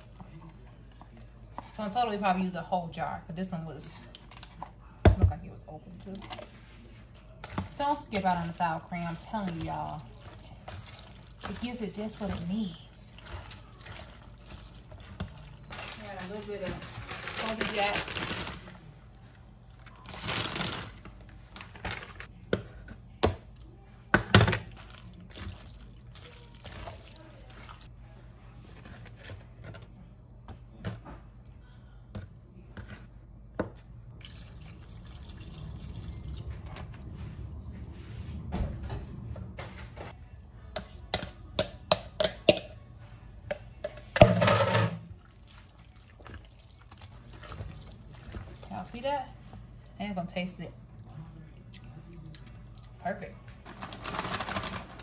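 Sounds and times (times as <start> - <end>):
liquid pouring: 34.1 - 36.6.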